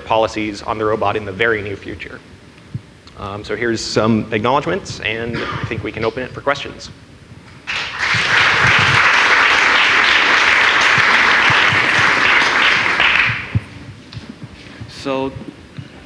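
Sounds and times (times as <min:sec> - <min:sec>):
audience applauding: 0:07.6 - 0:13.7.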